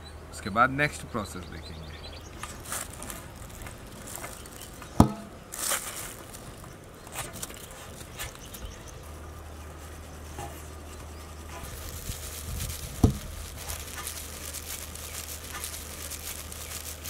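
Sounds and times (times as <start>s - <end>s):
steady low hum: 0.0s - 17.0s
brief rustle: 11.5s - 17.0s.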